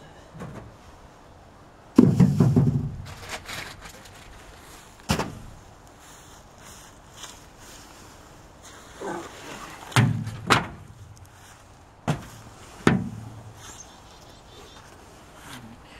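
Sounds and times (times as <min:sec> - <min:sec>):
hollow thuds on aluminum canoe: 0:02.0 - 0:03.1, 0:09.8 - 0:11.0, 0:12.0 - 0:13.6
soft bump: 0:02.0 - 0:03.2, 0:12.1 - 0:13.5.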